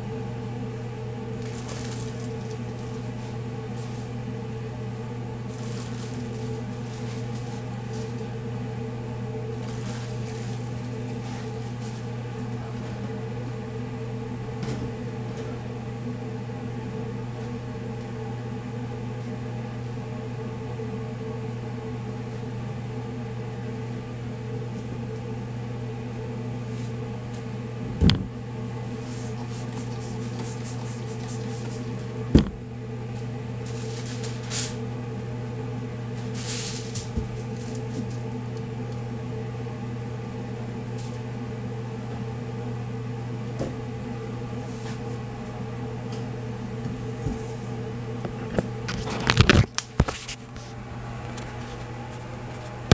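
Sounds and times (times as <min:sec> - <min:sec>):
electric hum of kitchen equipment: 0:00.0 - 0:52.9
aluminium foil crinkling: 0:01.4 - 0:04.1, 0:05.4 - 0:08.3, 0:09.5 - 0:12.1, 0:29.2 - 0:31.9, 0:33.6 - 0:34.8, 0:36.2 - 0:38.2.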